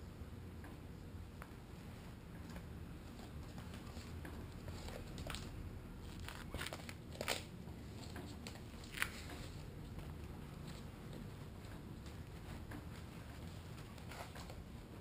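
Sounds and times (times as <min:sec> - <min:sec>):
training pad crinkling: 0:03.1 - 0:15.0.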